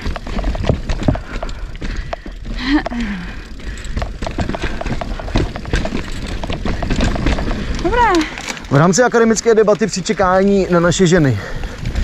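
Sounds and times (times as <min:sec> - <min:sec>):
wind rumble on microphone: 0:00.0 - 0:02.6, 0:10.9 - 0:12.0
bike rattling over rocks: 0:00.0 - 0:12.0.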